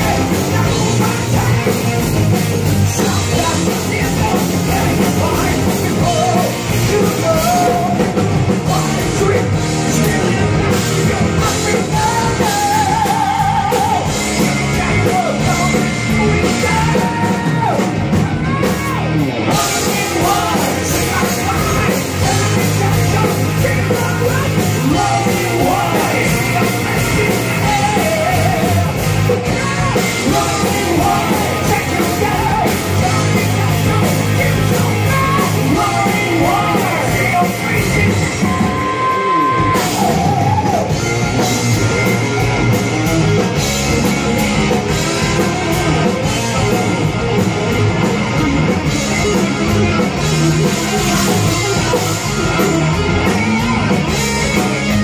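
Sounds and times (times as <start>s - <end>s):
man singing high strained vocals: 0.0s - 41.5s
rock band playing: 0.0s - 55.0s.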